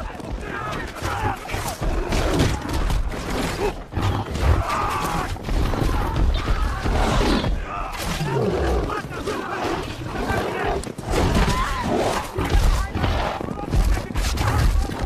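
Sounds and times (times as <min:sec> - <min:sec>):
people crying out: 0:03.7 - 0:11.9.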